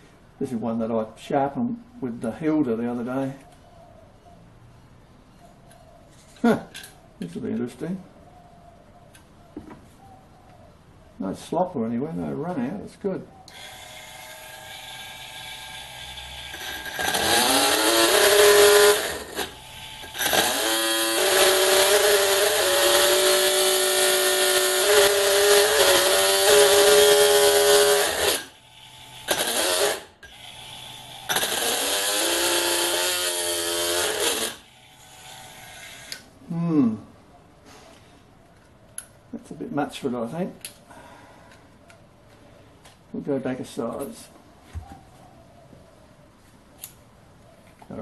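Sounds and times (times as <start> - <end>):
micro drill whining into steel: 13.5 - 36.3.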